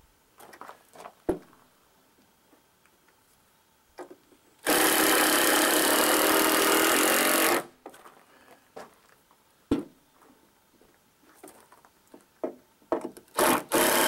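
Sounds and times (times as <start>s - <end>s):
power tool running: 4.6s - 7.7s, 13.3s - 14.0s.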